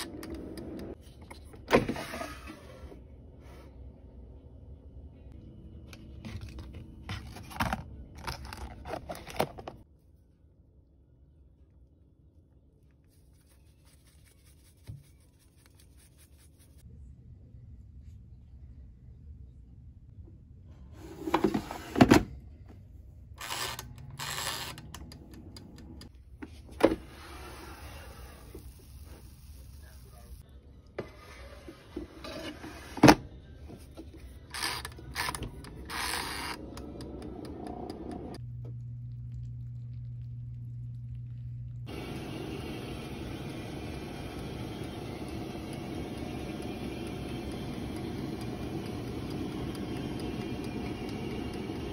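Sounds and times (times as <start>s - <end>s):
steady low hum: 33.4s - 51.9s.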